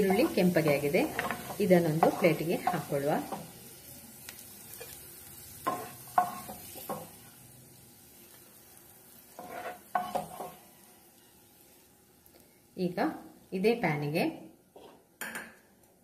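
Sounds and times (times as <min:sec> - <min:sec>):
spoon scraping frying pan: 0:00.0 - 0:03.6, 0:04.7 - 0:05.0, 0:05.6 - 0:07.2, 0:09.3 - 0:10.7, 0:14.8 - 0:15.6
hot oil sizzling: 0:00.0 - 0:15.8.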